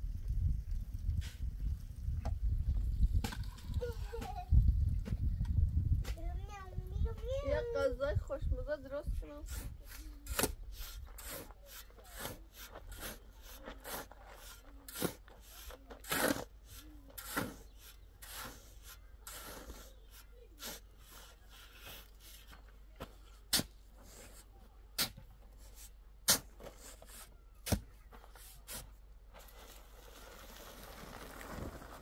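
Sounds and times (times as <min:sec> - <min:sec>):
shovel scraping sand and cement: 0:09.1 - 0:32.0
shovel sharp strikes: 0:23.5 - 0:23.8, 0:25.0 - 0:25.2, 0:26.3 - 0:26.6.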